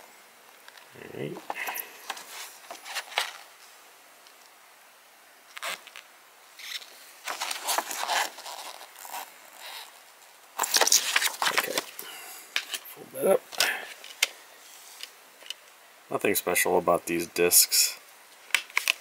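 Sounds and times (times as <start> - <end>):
paper poster crinkling and rustling: 0.6 - 3.8, 6.6 - 12.9.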